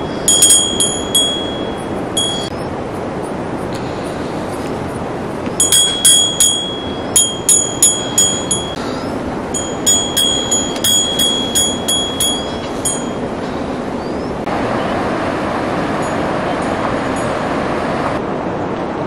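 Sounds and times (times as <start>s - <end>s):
small metal bell jingling: 0.0s - 2.5s, 5.6s - 8.8s, 9.6s - 13.3s
steady rushing noise: 0.0s - 19.0s.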